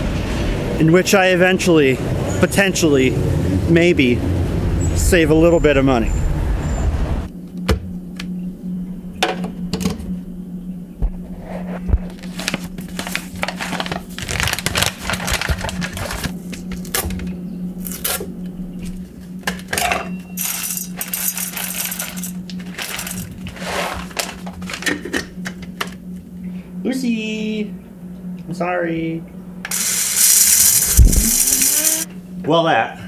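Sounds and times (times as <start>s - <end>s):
steady low hum: 0.0s - 33.0s
coffee beans rattling: 12.2s - 16.3s, 20.4s - 24.8s, 29.7s - 32.1s.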